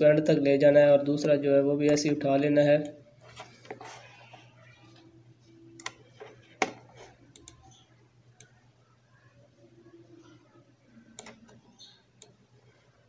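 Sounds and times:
faint low hum: 0:00.0 - 0:13.0
computer mouse clicks: 0:05.8 - 0:08.6, 0:11.1 - 0:12.4.

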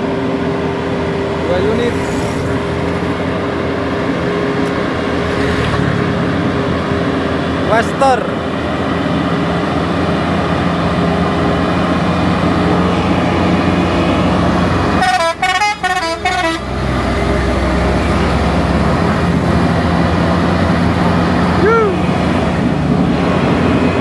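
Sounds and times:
heavy diesel truck engines: 0:00.0 - 0:24.0
truck horn playing musical notes: 0:14.9 - 0:17.1.

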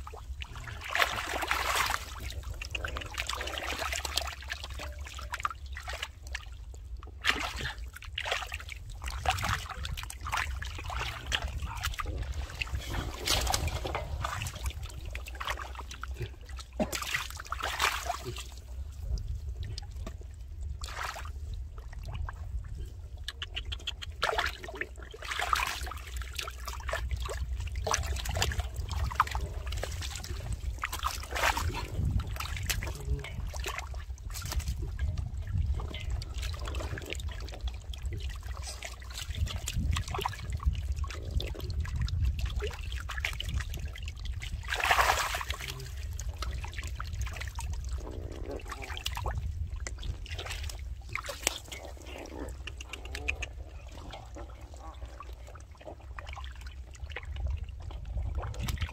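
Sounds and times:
water splashing and trickling: 0:00.0 - 0:58.9
water dripping clicks: 0:52.5 - 0:53.6.

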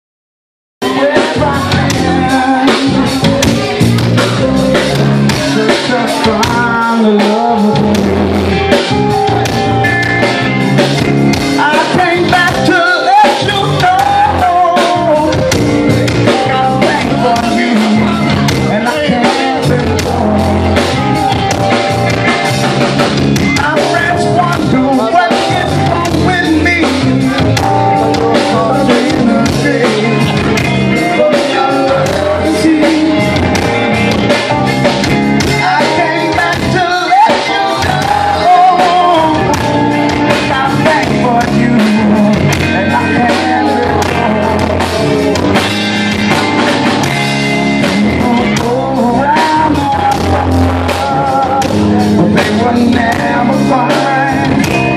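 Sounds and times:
drum kit: 0:00.8 - 0:54.9
electric guitar: 0:00.8 - 0:54.9
keyboard: 0:00.8 - 0:54.9.

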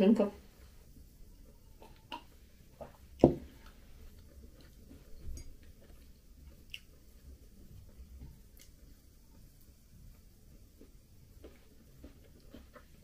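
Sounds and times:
chewing a muffin: 0:01.4 - 0:13.0.

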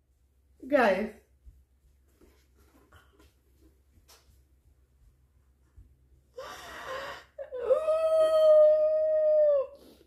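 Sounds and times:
woman gasping: 0:06.4 - 0:07.6.

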